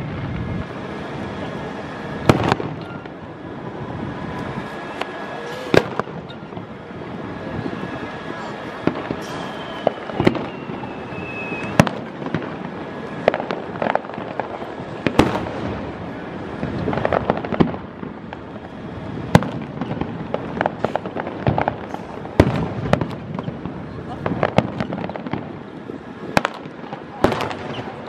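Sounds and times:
fireworks bursting with bangs: 0:00.0 - 0:28.0
fireworks crackling: 0:00.0 - 0:28.0
firework whistle: 0:00.7 - 0:15.9, 0:27.2 - 0:28.0.

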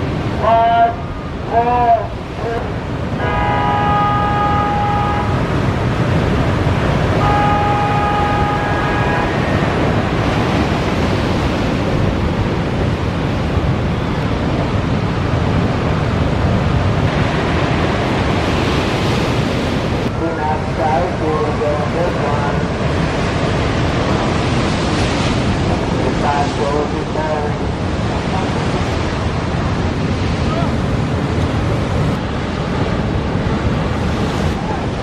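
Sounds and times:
ocean surf breaking: 0:00.0 - 0:35.0
wind on microphone: 0:00.0 - 0:35.0
steady pitched horn: 0:03.1 - 0:05.5, 0:07.2 - 0:09.6.

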